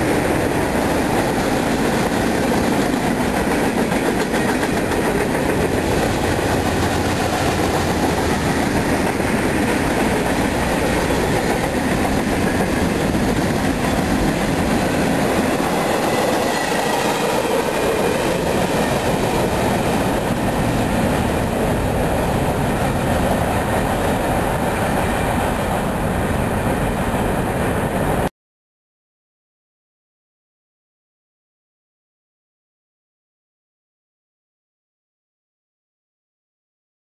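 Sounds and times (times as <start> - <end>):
freight train cars rumbling: 0.0 - 28.3.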